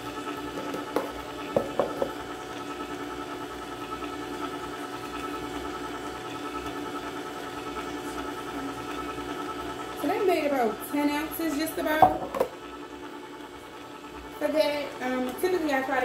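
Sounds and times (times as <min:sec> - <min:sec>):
juicer motor humming: 0:00.0 - 0:16.0
plastic jug knocking: 0:00.6 - 0:02.2, 0:12.0 - 0:12.6.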